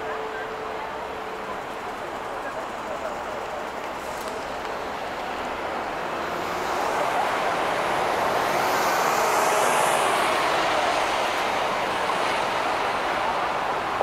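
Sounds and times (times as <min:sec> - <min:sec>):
city road traffic: 0:00.0 - 0:14.0
truck passing close by: 0:03.9 - 0:14.0.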